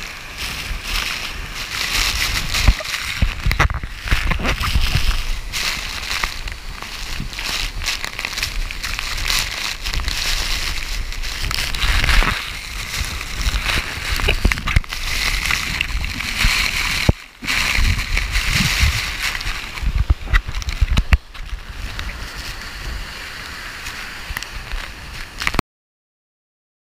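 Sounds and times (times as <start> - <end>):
waterfall rushing and splashing: 0.0 - 25.6.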